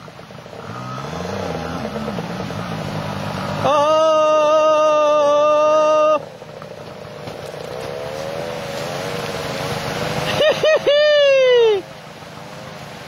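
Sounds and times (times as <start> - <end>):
dirt bike engine revving: 0.4 - 10.8.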